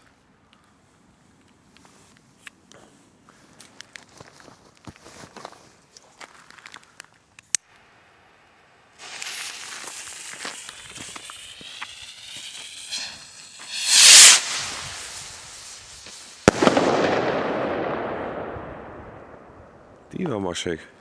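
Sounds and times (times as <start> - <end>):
fuse hissing and sputtering: 9.0 - 16.4
rocket launching whoosh: 9.0 - 19.5
firework bang: 9.0 - 19.6.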